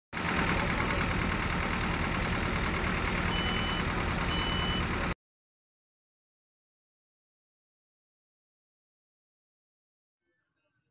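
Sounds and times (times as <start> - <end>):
excavator diesel engine running: 0.2 - 5.2
short high beeps: 3.3 - 4.9.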